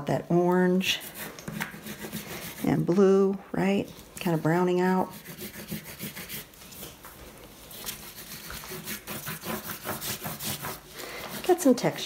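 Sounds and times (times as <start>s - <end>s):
oil pastel scratching on paper: 0.9s - 3.0s, 4.2s - 7.0s, 7.7s - 12.0s.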